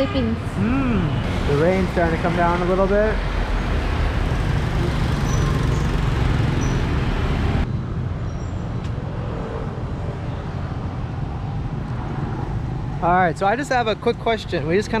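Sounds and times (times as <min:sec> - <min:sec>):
street traffic: 0:00.0 - 0:15.0
motor scooter passing: 0:04.2 - 0:07.6.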